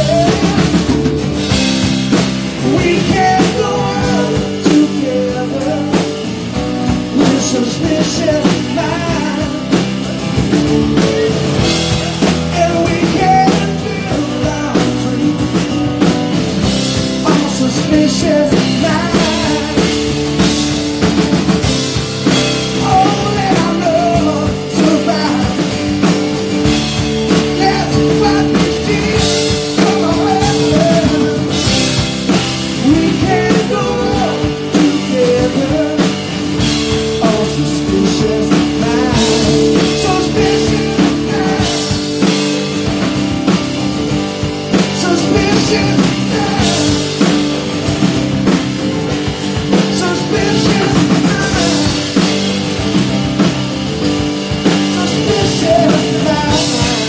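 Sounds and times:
man singing: 0.0 - 20.7, 22.2 - 43.0, 44.7 - 47.9, 49.2 - 52.6, 54.5 - 57.0
acoustic guitar: 0.0 - 57.0
drum kit: 0.0 - 57.0
electric bass: 0.0 - 57.0.

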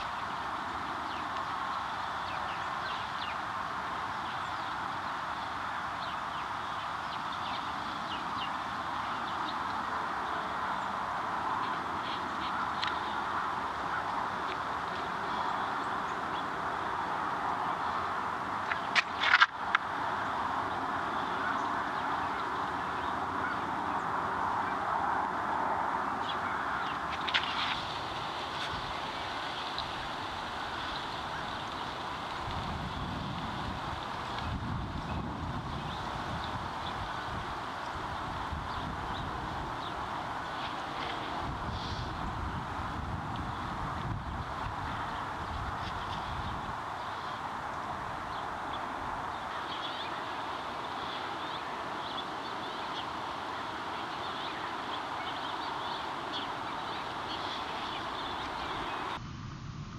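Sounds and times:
birds chirping: 0.0 - 59.2
outdoor hiss and rumble: 0.0 - 59.9.

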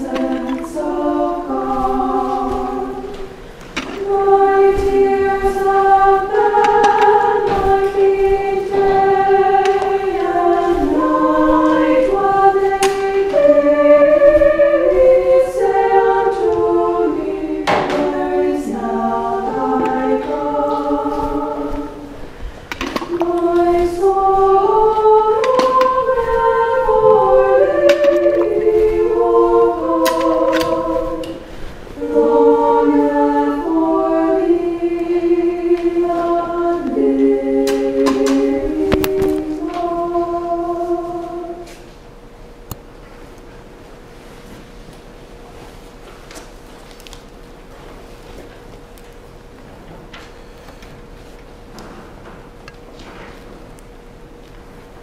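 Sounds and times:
choir singing unaccompanied: 0.0 - 42.1.

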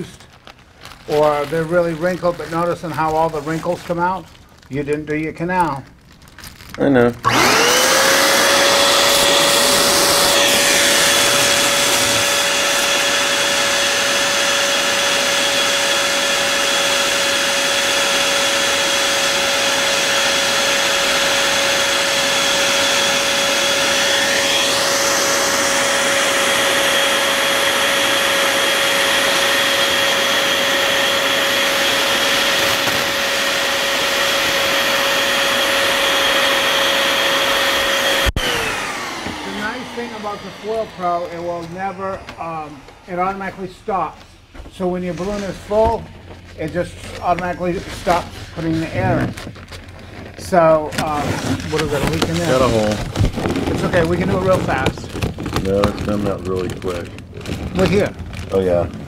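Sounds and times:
inflator motor whine: 7.2 - 44.5.

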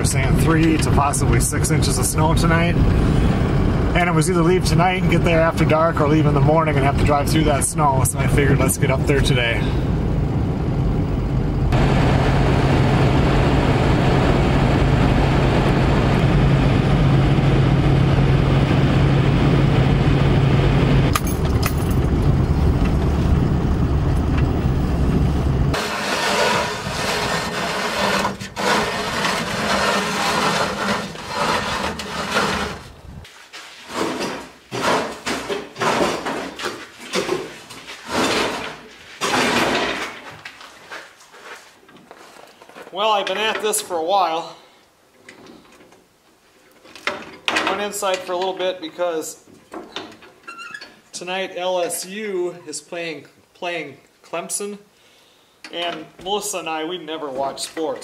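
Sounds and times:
truck cab hum: 0.0 - 33.3
saw stand pushed over snow: 25.7 - 33.0
knocks and scuffs: 33.2 - 43.0.

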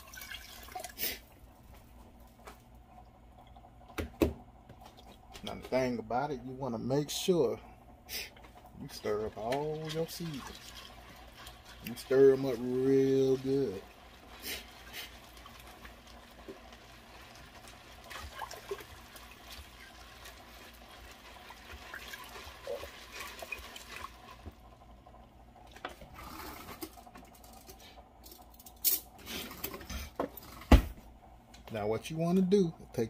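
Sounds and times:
liquid sloshing: 0.0 - 1.3, 8.6 - 24.7.

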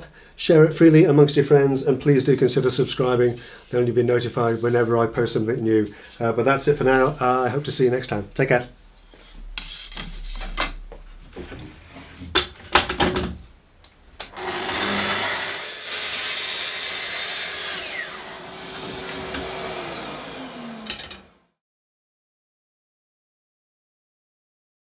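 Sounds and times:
dust extractor hum: 14.2 - 21.4
track saw cutting: 14.3 - 21.5
wooden pieces knocking: 20.8 - 21.2.

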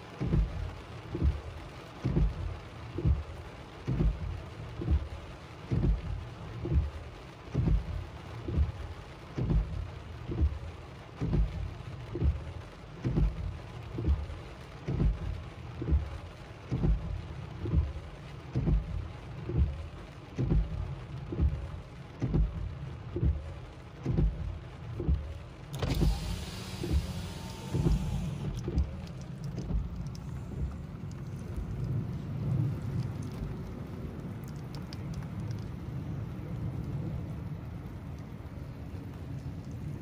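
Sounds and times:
rain pattering on car: 0.0 - 40.0
windshield wipers thumping: 0.0 - 40.0
loud hiss: 25.8 - 28.5.

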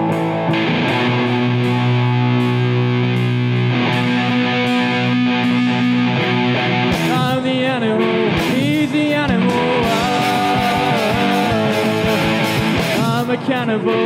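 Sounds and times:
drums: 0.0 - 14.0
electric guitar: 0.0 - 14.0
person singing: 6.9 - 14.0.

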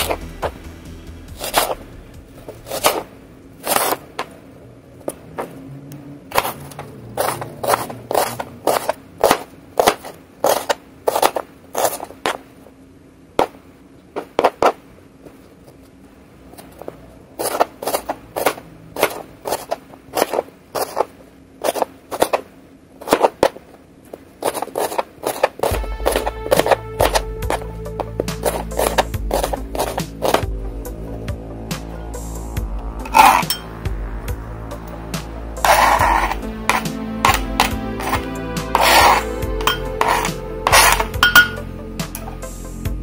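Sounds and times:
knife chopping onion on board: 6.3 - 12.4, 24.4 - 30.5, 38.8 - 41.6.

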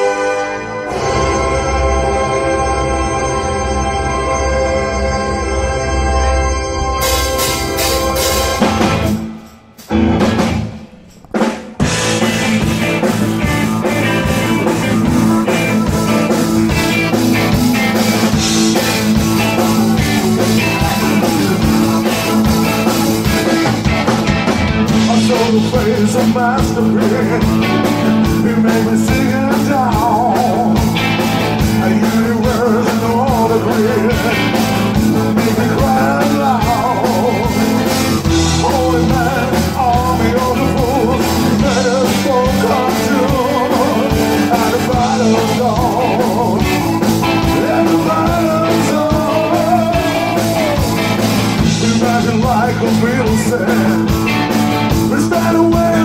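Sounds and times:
live rock band playing: 0.0 - 56.0
man singing lead vocals: 11.9 - 56.0.

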